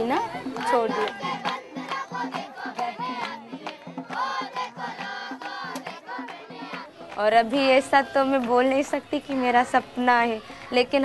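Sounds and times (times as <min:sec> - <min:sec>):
voices singing together: 0:00.0 - 0:11.0.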